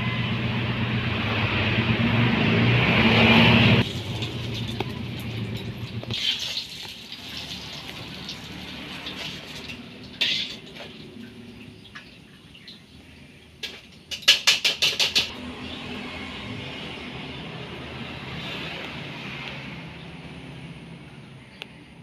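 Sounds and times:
oil sizzling in a wok: 0:03.8 - 0:11.1.

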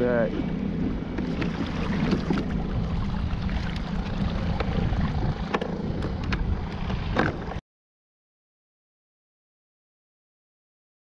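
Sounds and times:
water rushing along hull: 0:00.0 - 0:07.6
wind buffeting microphone: 0:00.0 - 0:07.6.

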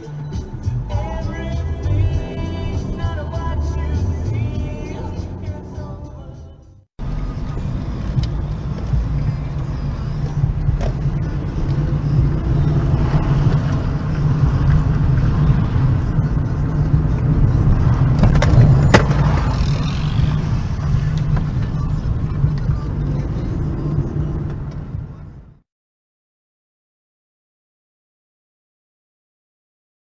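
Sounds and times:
car engine and road noise: 0:00.0 - 0:25.6.

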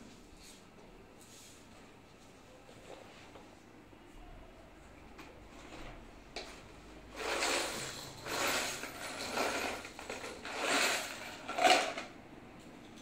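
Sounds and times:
tools clattering in a backpack: 0:07.2 - 0:12.1.

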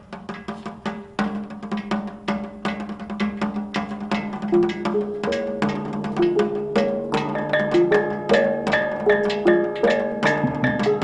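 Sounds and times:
drum and percussion beat: 0:00.0 - 0:11.0
melody of pitched notes: 0:04.6 - 0:11.0.

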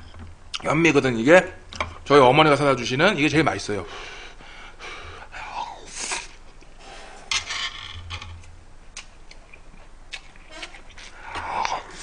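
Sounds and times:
person chewing food: 0:08.9 - 0:12.0.

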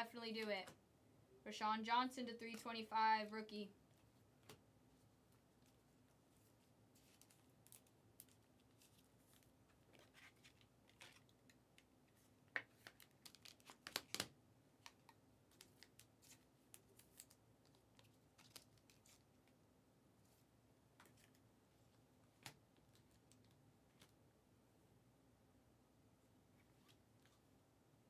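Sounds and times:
trading cards rustling: 0:07.0 - 0:14.3, 0:14.9 - 0:19.6.

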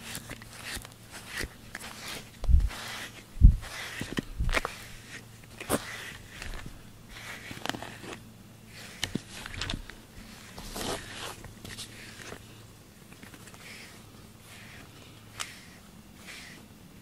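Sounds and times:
brush strokes through fur: 0:00.0 - 0:08.1, 0:13.6 - 0:17.0.

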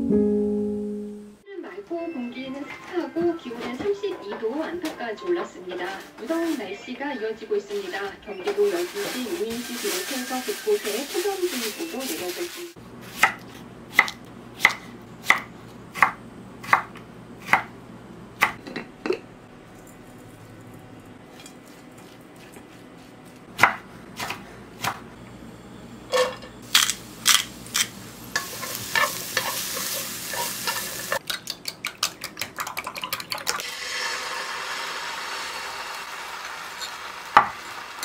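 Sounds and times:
stir-frying sizzle: 0:07.7 - 0:12.8, 0:26.6 - 0:31.2, 0:33.6 - 0:38.0
knife chopping carrot: 0:13.0 - 0:17.8, 0:18.4 - 0:18.6, 0:22.0 - 0:25.0
utensil beating eggs in glass jug: 0:31.2 - 0:33.7.

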